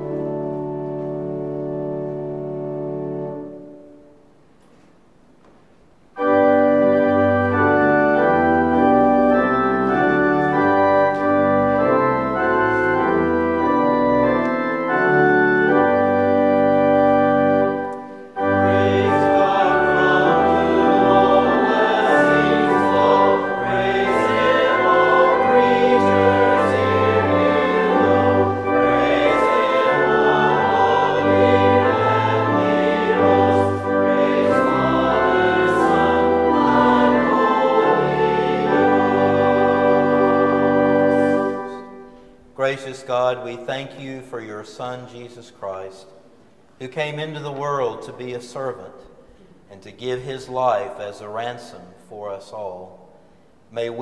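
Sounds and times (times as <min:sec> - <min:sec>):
pipe organ playing chords: 0:00.0 - 0:04.6, 0:06.0 - 0:54.0
choir singing: 0:17.6 - 0:42.0.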